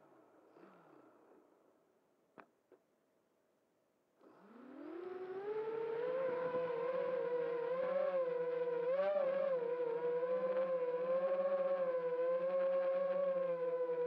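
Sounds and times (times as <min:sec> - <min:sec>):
drone motors whining: 0:04.2 - 0:14.0.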